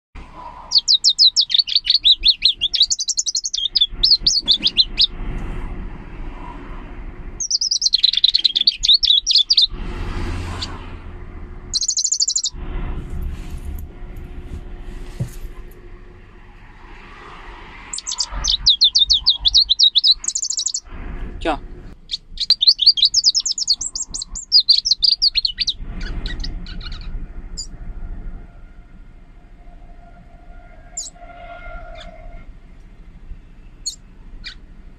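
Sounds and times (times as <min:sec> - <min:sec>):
warbler singing high trills: 0:00.7 - 0:05.2, 0:07.4 - 0:09.8, 0:11.7 - 0:12.6, 0:17.9 - 0:20.9, 0:22.1 - 0:27.8, 0:30.9 - 0:31.2.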